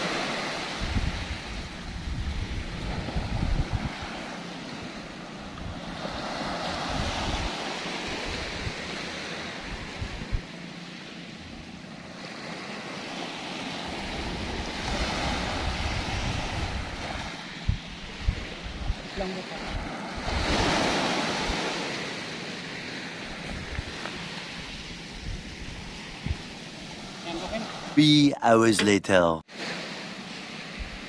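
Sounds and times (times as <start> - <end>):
wind buffeting microphone: 0.0 - 10.6, 13.7 - 22.2, 23.0 - 28.0
small surf on gravelly beach: 0.0 - 10.9, 12.0 - 28.1, 29.1 - 31.0.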